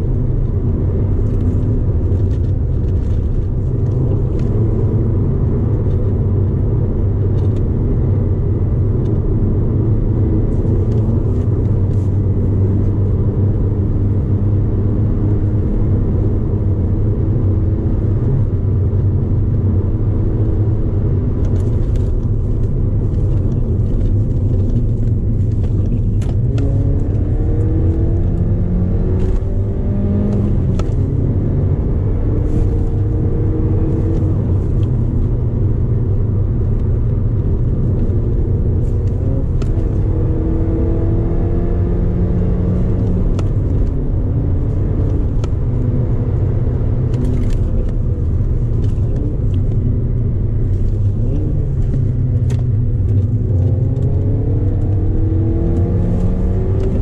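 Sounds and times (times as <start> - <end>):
car engine: 0.0 - 57.0
road and tyre noise: 0.0 - 57.0.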